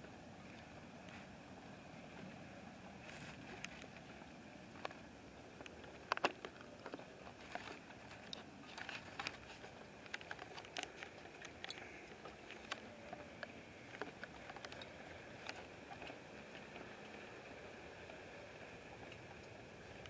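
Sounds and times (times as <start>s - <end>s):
faint high hum: 0.0s - 20.0s
steady hiss: 7.7s - 20.0s
sharp clicks and ticks: 10.0s - 16.0s.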